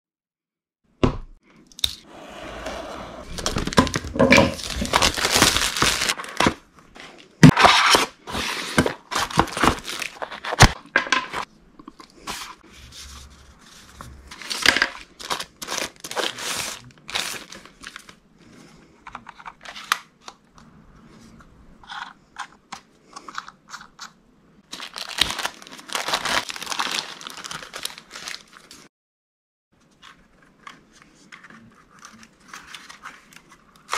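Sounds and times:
cardboard rustling and sliding: 0:02.0 - 0:06.4
wrappings tearing and crinkling: 0:03.3 - 0:06.4, 0:14.3 - 0:18.2, 0:24.7 - 0:28.8.

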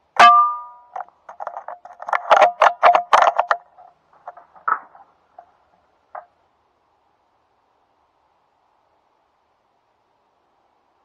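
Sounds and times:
sharp metallic clicks and rattles: 0:00.2 - 0:06.4.

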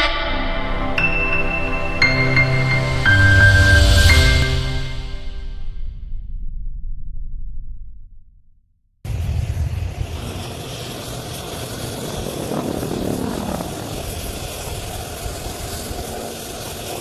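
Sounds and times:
helicopter rotor and engine noise: 0:10.1 - 0:17.0.

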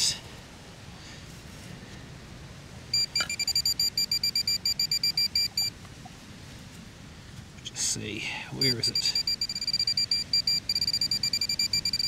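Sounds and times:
rapid high-pitched beeping: 0:03.0 - 0:05.7, 0:08.6 - 0:12.0.

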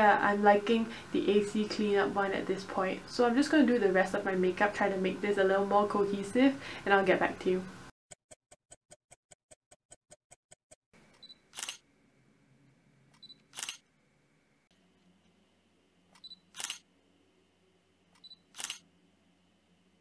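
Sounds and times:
camera shutter click: 0:11.5 - 0:11.8, 0:13.4 - 0:13.8, 0:16.5 - 0:16.8, 0:18.2 - 0:18.8.

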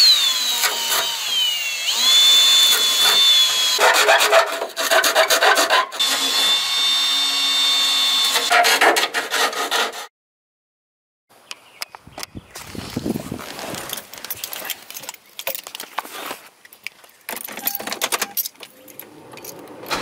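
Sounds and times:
cordless drill whining: 0:00.0 - 0:03.8, 0:06.0 - 0:08.5.

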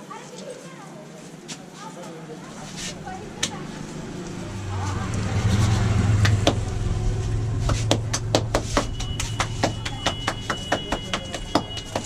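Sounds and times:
low hum: 0:02.4 - 0:11.5.

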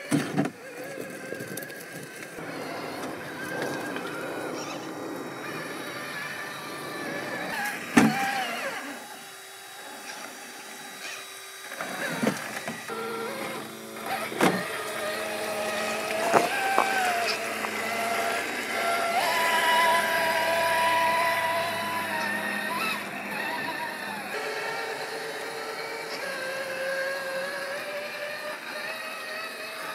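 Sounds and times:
electric motor whining: 0:00.0 - 0:29.9
tyres knocking against rock: 0:16.0 - 0:18.0.

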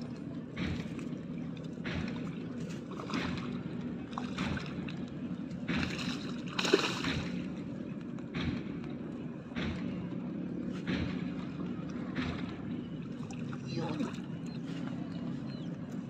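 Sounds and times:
fish splashing at surface: 0:05.7 - 0:07.5.

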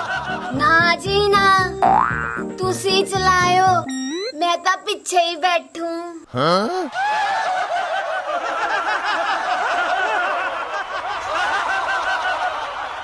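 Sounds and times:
laugh track: 0:00.0 - 0:01.2, 0:06.4 - 0:12.8.

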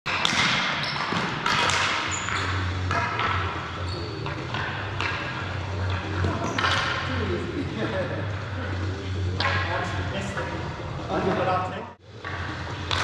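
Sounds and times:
hockey sticks clacking: 0:00.1 - 0:07.2, 0:09.4 - 0:10.6, 0:12.2 - 0:13.0
sneaker squeaks: 0:00.6 - 0:07.1.

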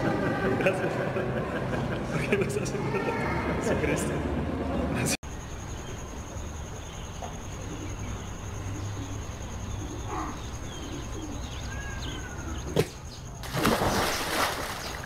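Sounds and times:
birds chirping: 0:04.7 - 0:15.0.

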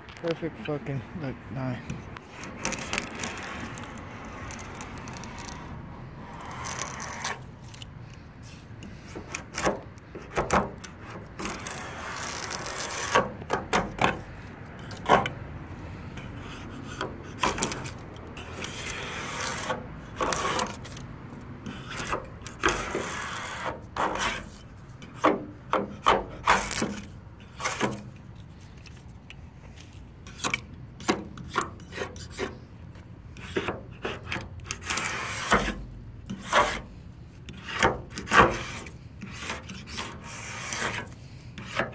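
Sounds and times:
razor blade scraping paint: 0:02.2 - 0:14.2, 0:16.2 - 0:28.2, 0:30.2 - 0:32.7, 0:33.4 - 0:41.9.

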